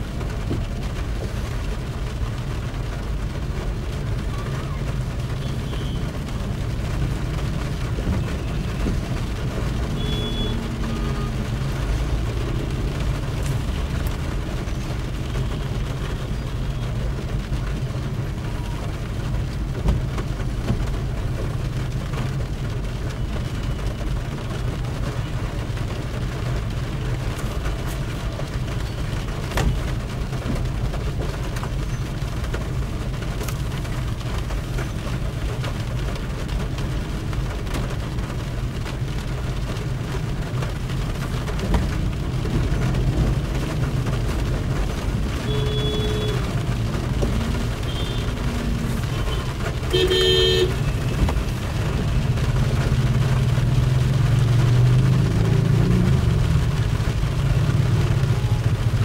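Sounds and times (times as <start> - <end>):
car engine and tyres rumbling: 0.0 - 59.0.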